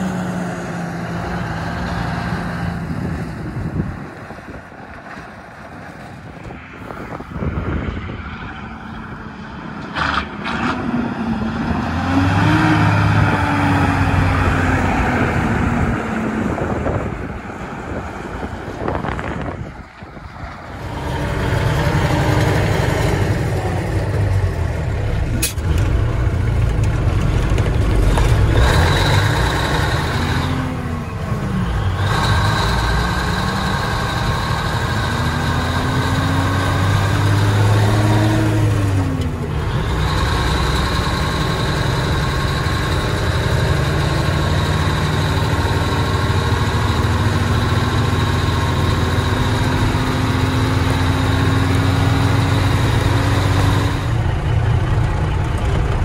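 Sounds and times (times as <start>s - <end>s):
diesel truck engine revving: 0.0s - 56.0s.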